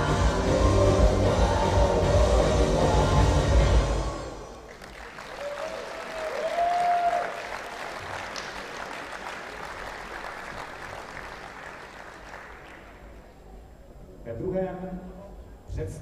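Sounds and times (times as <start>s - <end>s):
audience applauding: 4.6s - 13.3s.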